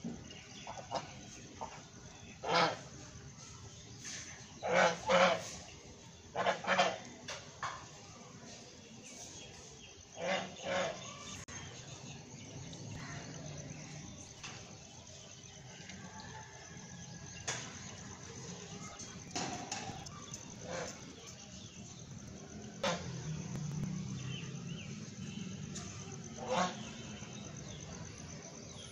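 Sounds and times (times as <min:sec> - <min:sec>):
geese honking: 0:02.4 - 0:02.9, 0:04.6 - 0:05.6, 0:06.3 - 0:07.1, 0:10.2 - 0:11.2, 0:22.8 - 0:23.2, 0:26.4 - 0:27.1.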